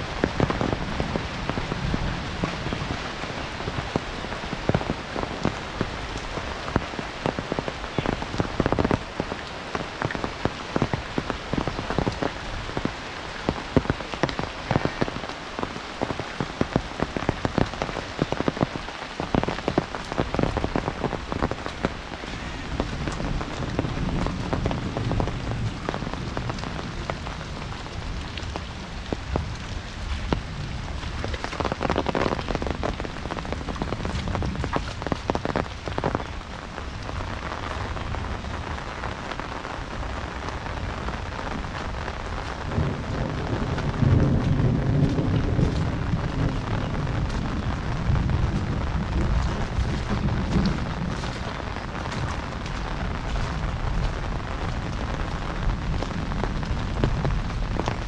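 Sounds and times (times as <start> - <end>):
heavy rain pattering: 0.0 - 58.0
low rumble: 41.1 - 58.0.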